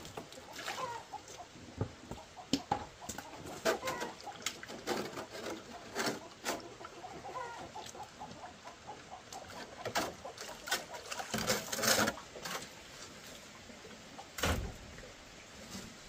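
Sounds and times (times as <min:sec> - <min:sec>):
chicken clucking: 0:00.4 - 0:11.4.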